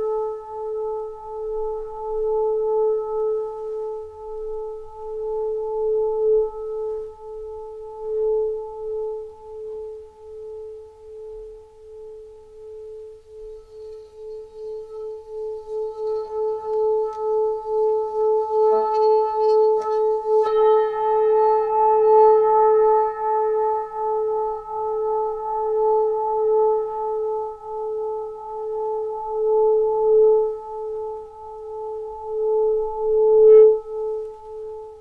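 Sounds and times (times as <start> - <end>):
pulsing ringing drone: 12.3 - 27.7.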